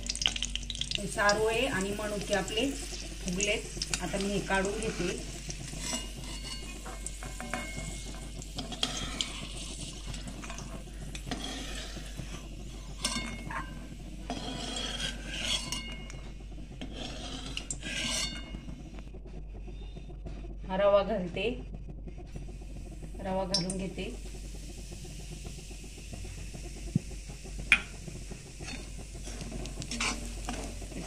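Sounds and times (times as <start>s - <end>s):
metal spatula scraping a pan: 1.8s - 18.6s, 28.6s - 31.0s.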